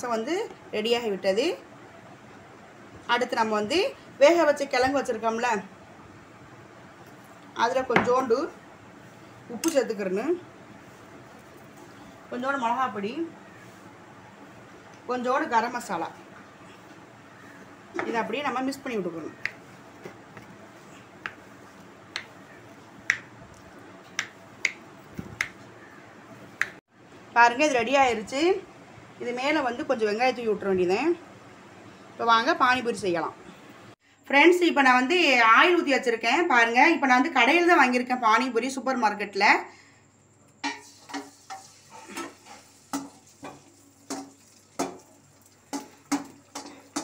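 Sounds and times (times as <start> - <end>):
frying oil popping and spitting: 40.6 - 47.0.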